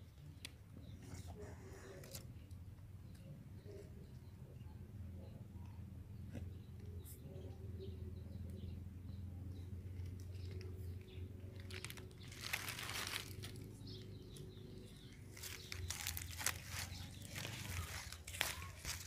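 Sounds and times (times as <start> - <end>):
dry leaves and twigs rustling: 9.8 - 19.0.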